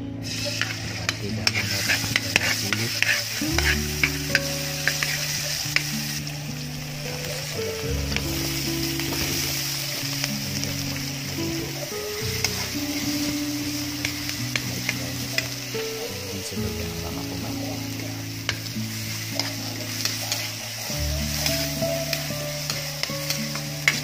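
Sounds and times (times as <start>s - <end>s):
vegetables sizzling in hot oil: 0.0s - 24.0s
metal spatula scraping a pan: 0.2s - 7.8s, 18.3s - 24.0s.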